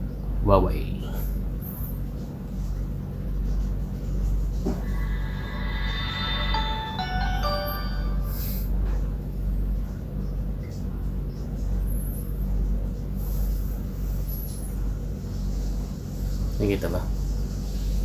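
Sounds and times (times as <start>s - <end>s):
low room hum: 0.0s - 18.0s
phone startup chime: 4.8s - 8.7s.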